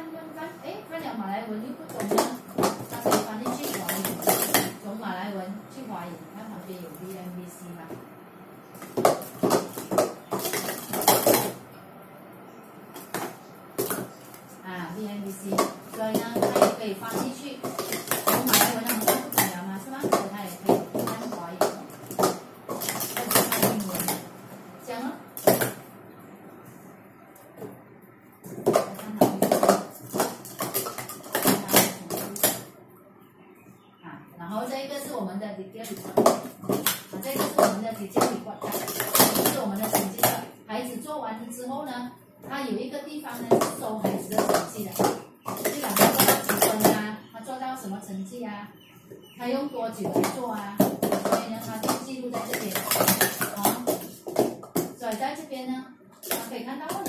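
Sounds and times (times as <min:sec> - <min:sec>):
plastic cups clacking: 0:01.8 - 0:04.8, 0:08.6 - 0:11.6, 0:12.9 - 0:24.6, 0:25.3 - 0:26.0, 0:27.4 - 0:32.8, 0:35.8 - 0:40.6, 0:43.2 - 0:47.1, 0:49.1 - 0:55.2, 0:56.2 - 0:57.0.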